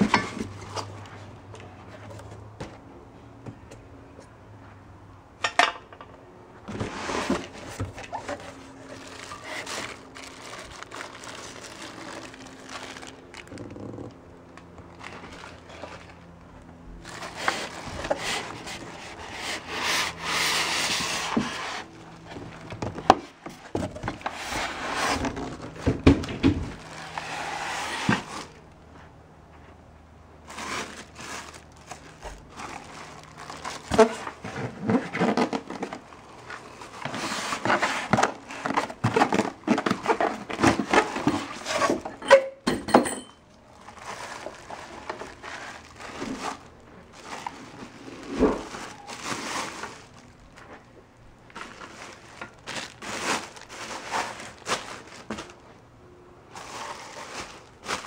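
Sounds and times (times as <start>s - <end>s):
cardboard scraping: 6.7s - 14.2s, 17.0s - 28.6s, 30.4s - 42.2s, 43.9s - 50.8s
plastic wrapping rustling: 6.7s - 29.0s, 30.4s - 42.3s, 43.6s - 55.8s, 56.5s - 58.0s.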